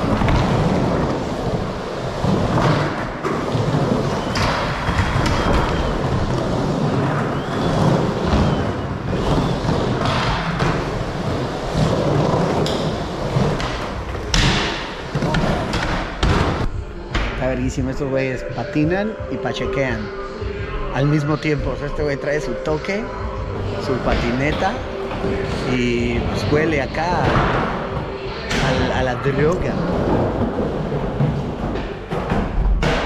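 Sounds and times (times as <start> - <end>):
skateboard wheels rolling: 0.0 - 16.7, 29.3 - 33.0.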